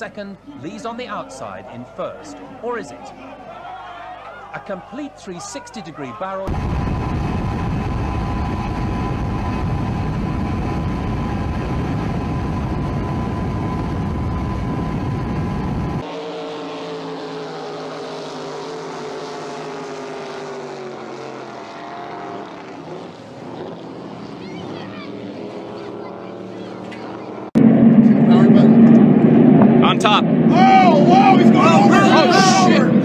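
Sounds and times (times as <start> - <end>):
racing powerboat engines: 0.0 - 33.0
water noise: 6.1 - 33.0
rushing wind: 6.5 - 16.7, 26.7 - 33.0
motorboat engine whine: 6.5 - 33.0.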